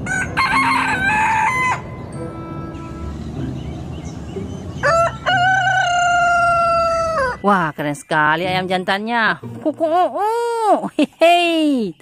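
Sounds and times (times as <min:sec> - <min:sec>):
rooster crowing: 0:00.0 - 0:02.0, 0:04.7 - 0:07.4.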